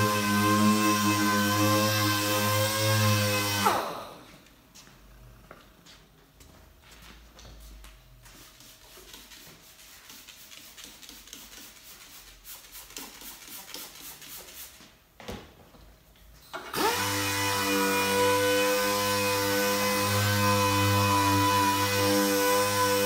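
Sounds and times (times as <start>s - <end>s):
orbital sander whining: 0.0s - 4.1s.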